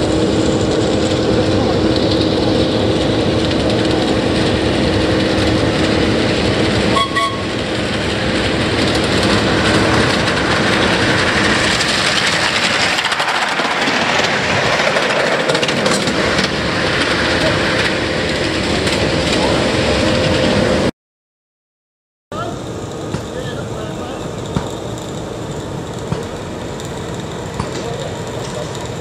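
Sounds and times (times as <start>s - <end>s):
wheels clattering on track: 0.0s - 20.9s, 22.4s - 29.0s
steam hissing: 22.4s - 29.0s.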